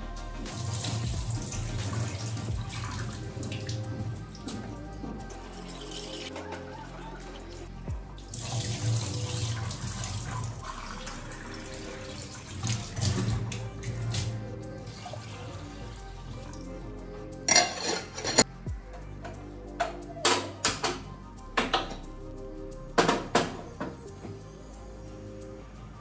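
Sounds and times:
music playing: 0:00.0 - 0:26.0.

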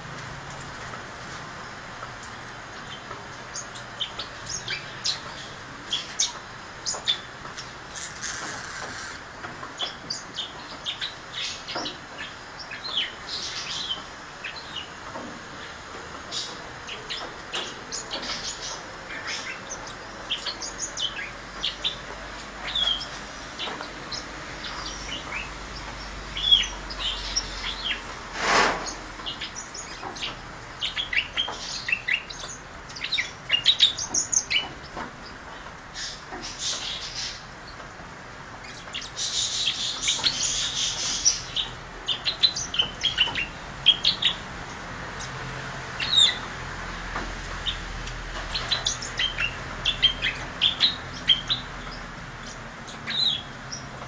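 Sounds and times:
parakeet flock chirping: 0:16.3 - 0:28.1, 0:28.8 - 0:35.4, 0:36.0 - 0:37.4, 0:38.6 - 0:46.4, 0:47.6 - 0:54.0.

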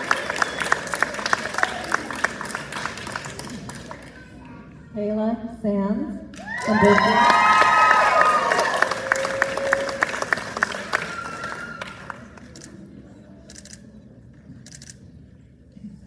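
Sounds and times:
audience applauding and cheering: 0:00.0 - 0:04.2, 0:06.4 - 0:12.7
whoops: 0:06.4 - 0:12.2.

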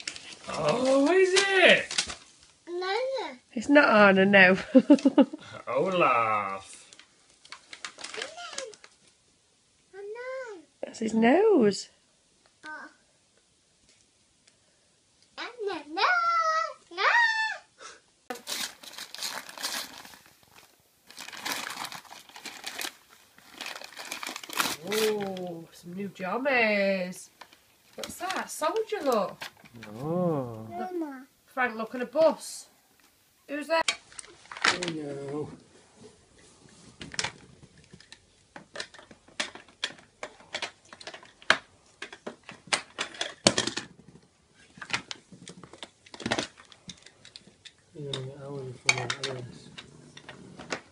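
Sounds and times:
paper crinkling and tearing: 0:00.0 - 0:02.3, 0:07.4 - 0:09.0, 0:18.3 - 0:25.7.

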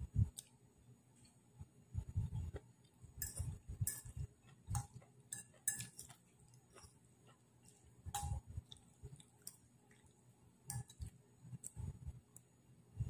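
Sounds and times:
chewing: 0:02.5 - 0:11.9
fork clinking on a plate: 0:03.2 - 0:04.2, 0:04.8 - 0:06.2.

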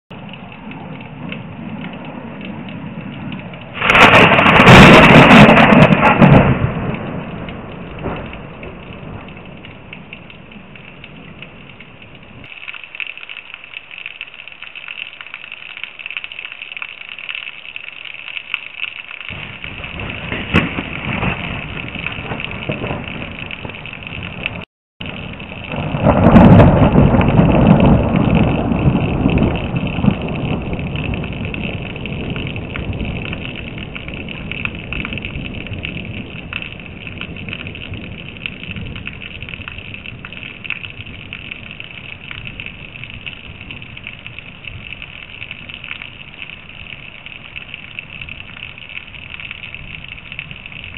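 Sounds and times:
rain hissing: 0:00.1 - 0:50.9
thunder: 0:00.7 - 0:11.6, 0:19.3 - 0:45.8.

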